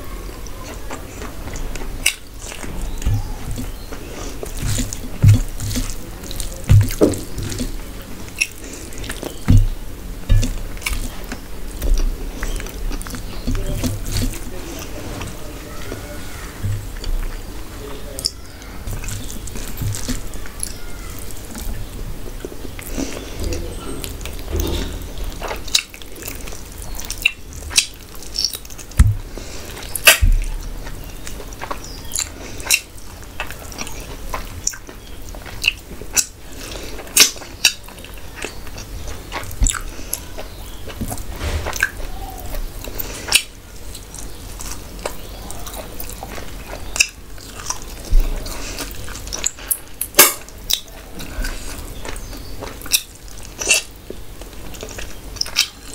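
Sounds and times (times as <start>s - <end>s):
wet chewing and mouth smacking: 0.4s - 15.3s, 16.7s - 55.9s
dull knocks: 4.6s - 6.0s, 6.7s - 7.6s, 9.4s - 10.6s, 29.0s - 29.3s.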